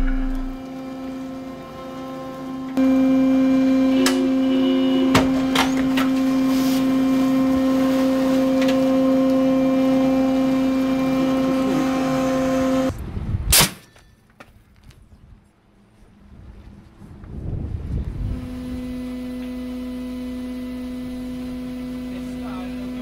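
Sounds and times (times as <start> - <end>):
shipboard machinery hum: 0.0 - 12.9, 18.1 - 23.0
wind rushing on microphone: 12.9 - 13.6, 16.2 - 18.9.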